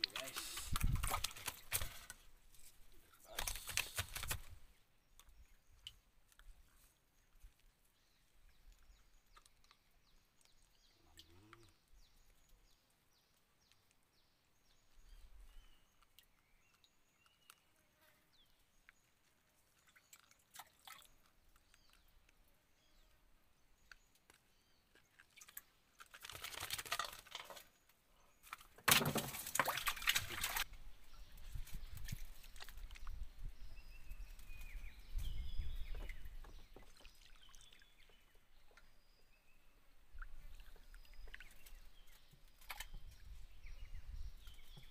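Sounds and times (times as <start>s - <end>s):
water splashing: 0.0s - 2.1s, 19.7s - 21.2s, 28.9s - 30.7s.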